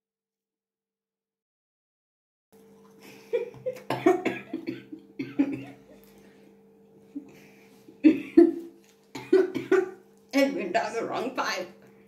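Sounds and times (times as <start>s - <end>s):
woman coughing: 3.8s - 5.9s, 9.2s - 10.0s.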